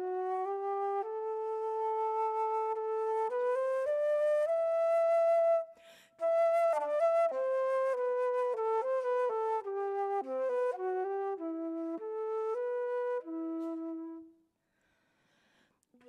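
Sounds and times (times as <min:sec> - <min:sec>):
solo flute melody: 0:00.0 - 0:14.4.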